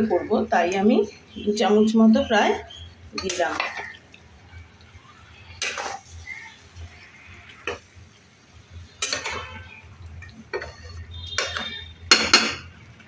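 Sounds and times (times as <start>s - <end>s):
spatula scraping metal pan: 5.6s - 6.2s, 9.0s - 9.6s, 10.5s - 12.5s.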